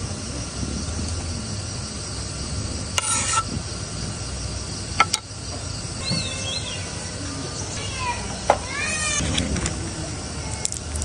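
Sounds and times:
mushrooms scraped into pot: 0:03.0 - 0:03.5.

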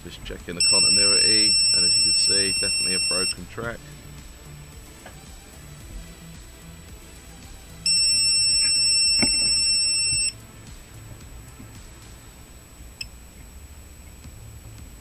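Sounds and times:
high-pitched multimeter beep: 0:00.6 - 0:03.4, 0:07.8 - 0:10.4.

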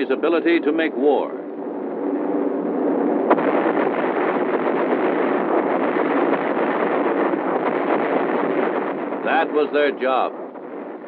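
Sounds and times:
bombs exploding: 0:01.9 - 0:11.0.

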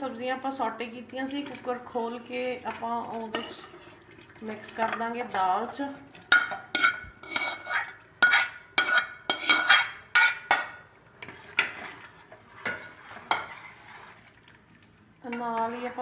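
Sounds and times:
metal ladle clinking on pans: 0:02.7 - 0:03.8, 0:06.2 - 0:10.9.

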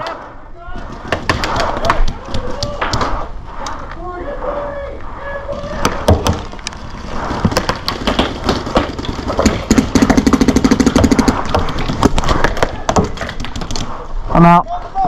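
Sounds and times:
paintball markers firing: 0:00.0 - 0:03.2, 0:05.6 - 0:14.0.

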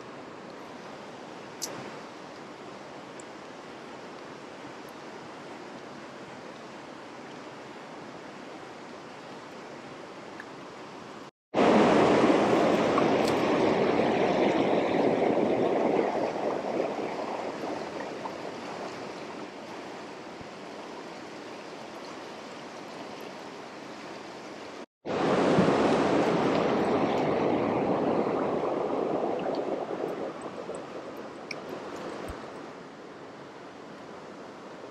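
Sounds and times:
river rushing over rocks: 0:10.9 - 0:34.9.

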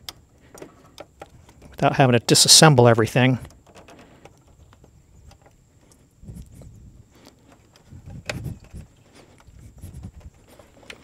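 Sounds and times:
tool handling knocks and rubbing: 0:03.4 - 0:11.0.

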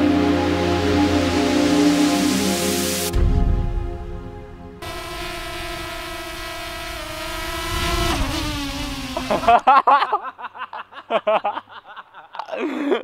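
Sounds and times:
drone propellers whining: 0:03.8 - 0:09.8
people laughing: 0:09.2 - 0:13.0.

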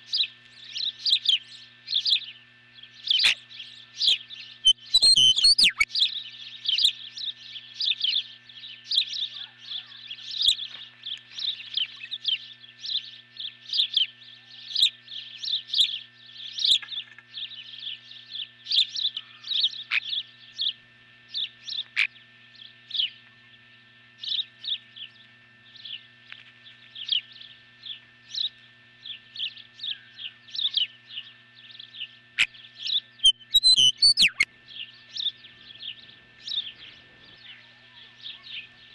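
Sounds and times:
ospreys whistled chirps: 0:04.0 - 0:05.9, 0:33.2 - 0:34.5.

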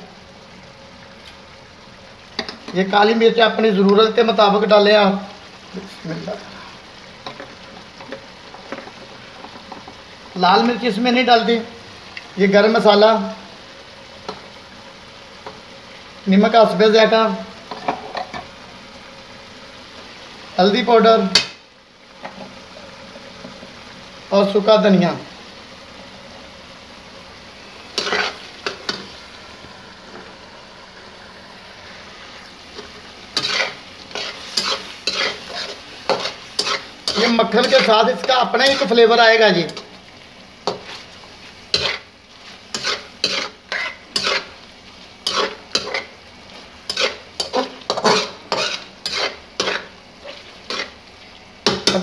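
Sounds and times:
gravy sizzling: 0:00.0 - 0:52.0
metal spatula scraping pan: 0:27.9 - 0:29.2, 0:32.7 - 0:39.0, 0:41.7 - 0:44.6, 0:45.2 - 0:46.2, 0:46.8 - 0:51.0.

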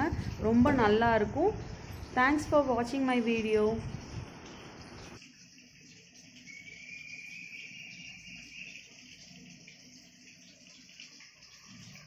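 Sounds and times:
insect chirring: 0:06.4 - 0:10.6.

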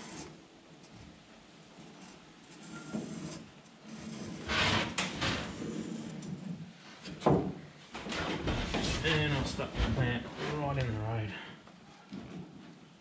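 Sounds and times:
wooden stick scraping plywood: 0:01.9 - 0:06.4, 0:08.0 - 0:11.0.

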